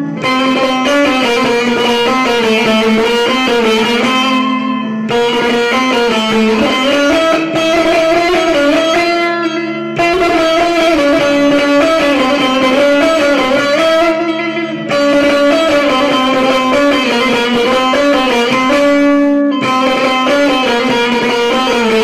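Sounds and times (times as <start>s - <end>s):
plucked long-necked lute melody: 0.0s - 22.0s.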